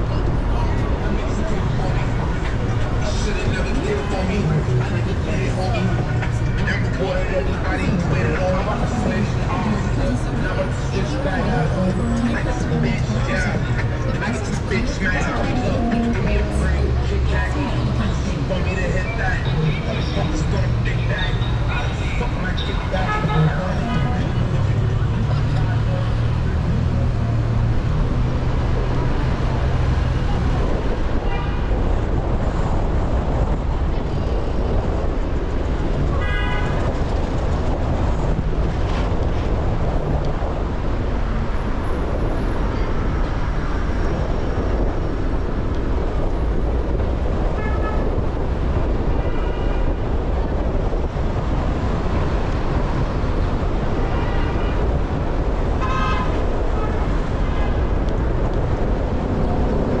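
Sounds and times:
city traffic rumble: 0:00.0 - 1:00.0
car horn toots: 0:55.8 - 0:57.0.

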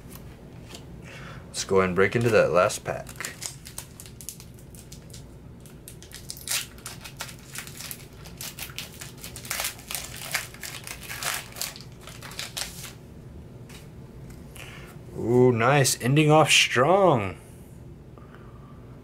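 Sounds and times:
foil wrapper crinkling: 0:02.0 - 0:13.0.

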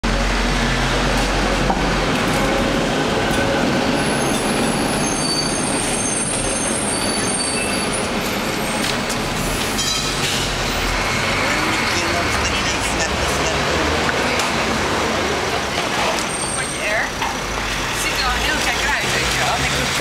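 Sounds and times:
city street noise: 0:00.0 - 0:20.0
tram passing on rails: 0:00.0 - 0:20.0
tram wheel squeal: 0:03.4 - 0:13.0, 0:16.0 - 0:19.9.

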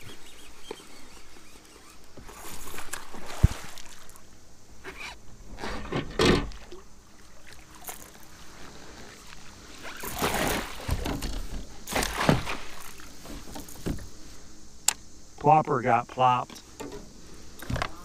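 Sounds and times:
fish thrashing in water: 0:09.9 - 0:11.0.

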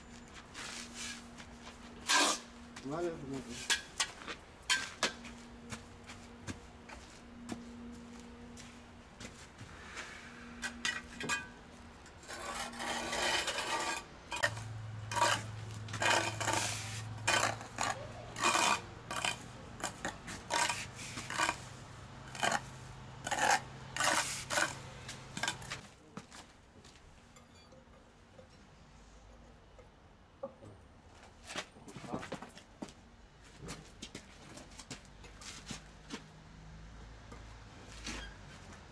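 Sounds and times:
hand trowel scraping mortar: 0:02.0 - 0:02.5, 0:12.2 - 0:25.9.

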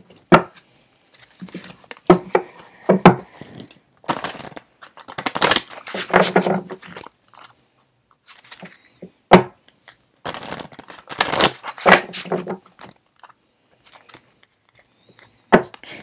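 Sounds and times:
cards rustling and sliding: 0:00.5 - 0:07.6, 0:08.2 - 0:09.0, 0:09.6 - 0:16.0.

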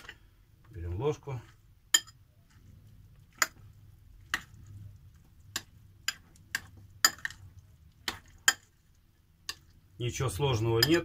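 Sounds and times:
metal spoon clinking glass bowl: 0:01.9 - 0:02.2, 0:05.5 - 0:07.4, 0:08.1 - 0:08.7, 0:10.6 - 0:11.0.

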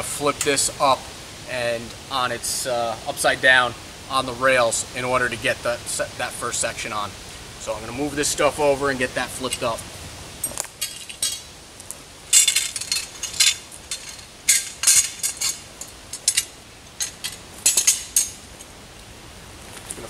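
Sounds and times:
metal sections clanking: 0:10.4 - 0:11.5, 0:12.3 - 0:18.7.

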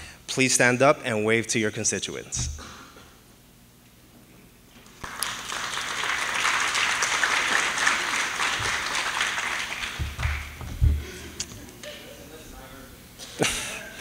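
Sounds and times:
audience applauding: 0:05.0 - 0:10.7.

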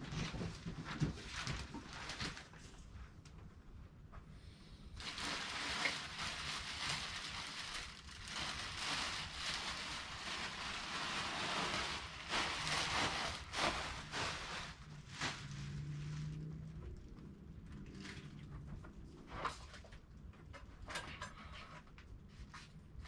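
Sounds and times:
plastic bag crinkling: 0:05.0 - 0:15.9.

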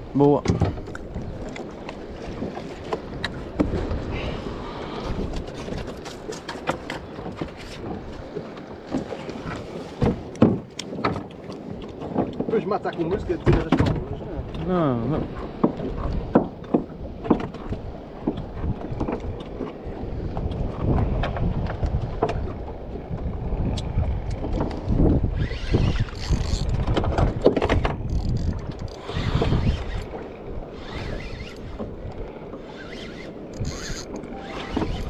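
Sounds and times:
water against boat hull: 0:00.0 - 0:35.0
wind buffeting the microphone: 0:00.0 - 0:35.0
fishing tackle clicks and knocks: 0:26.1 - 0:30.2, 0:33.4 - 0:35.0.

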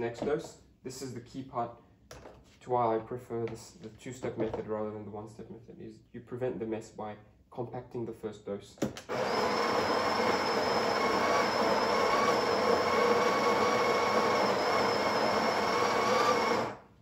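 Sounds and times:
coffee grinder grinding beans: 0:09.1 - 0:16.9.

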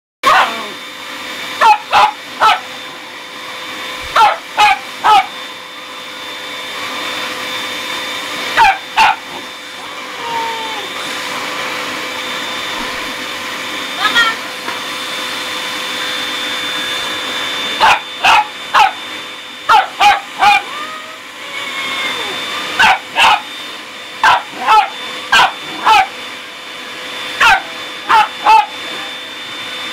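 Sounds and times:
dog barking: 0:00.2 - 0:00.7, 0:01.6 - 0:02.7, 0:04.1 - 0:05.3, 0:08.6 - 0:09.4, 0:17.8 - 0:19.0, 0:19.7 - 0:20.7, 0:22.8 - 0:23.5, 0:24.2 - 0:26.2, 0:27.4 - 0:28.8
vacuum cleaner whining: 0:00.2 - 0:29.9.

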